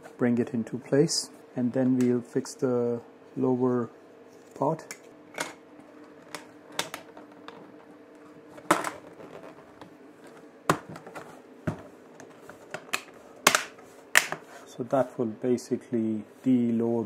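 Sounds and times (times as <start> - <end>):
faint steady hum: 0.0 - 17.0
plastic clips snapping: 12.8 - 14.4.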